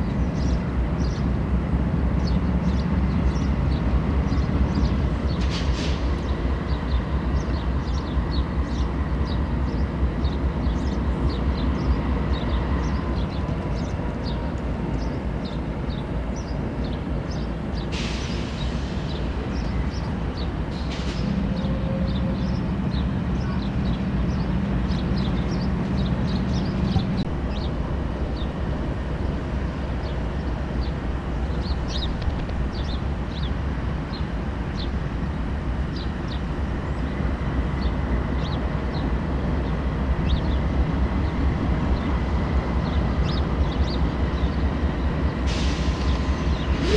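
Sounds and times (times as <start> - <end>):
diesel locomotives idling: 0.0 - 46.9
short air hisses: 5.4 - 6.2, 17.9 - 19.2, 20.7 - 21.3, 45.5 - 46.9.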